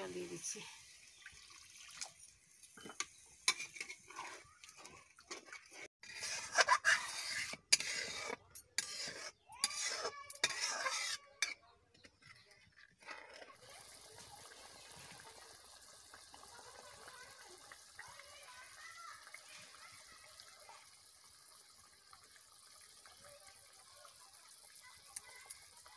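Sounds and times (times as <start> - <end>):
spatula scraping a metal pot: 2.8 - 13.9
curry simmering hiss: 13.6 - 25.9.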